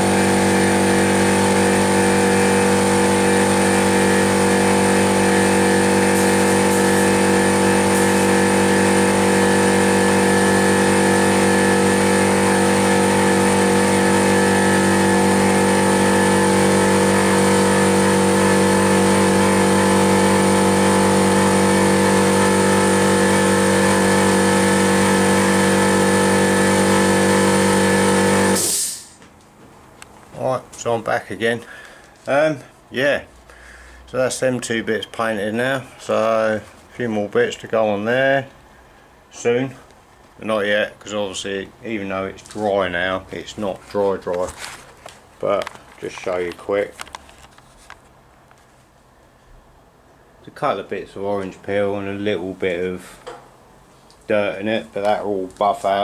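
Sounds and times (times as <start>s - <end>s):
air compressor motor humming: 0.0s - 29.2s
paint spray gun hissing: 0.0s - 29.2s.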